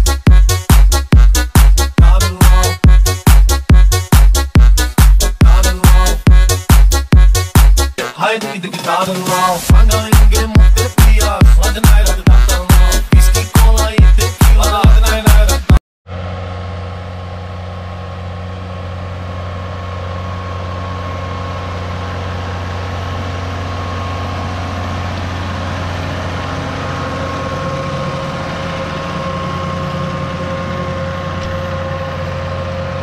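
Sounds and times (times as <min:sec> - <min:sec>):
tractor engine under load: 0:16.1 - 0:33.0.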